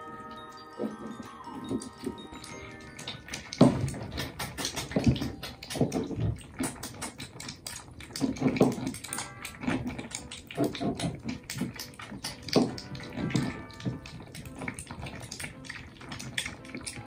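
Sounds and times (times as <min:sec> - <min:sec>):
kittens eating wet food: 0:00.0 - 0:17.0.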